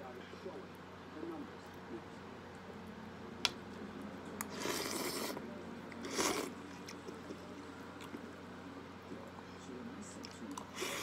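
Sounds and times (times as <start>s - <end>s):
slurping noodles and soup: 4.4s - 7.0s, 10.6s - 11.0s.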